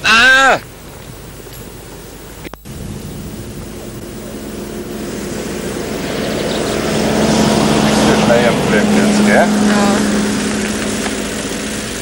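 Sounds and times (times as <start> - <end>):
engine droning: 2.4 - 12.0.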